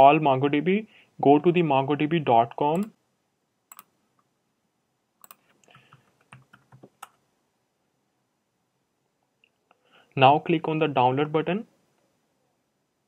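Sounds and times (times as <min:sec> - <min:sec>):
mouse clicks: 0:05.2 - 0:07.2.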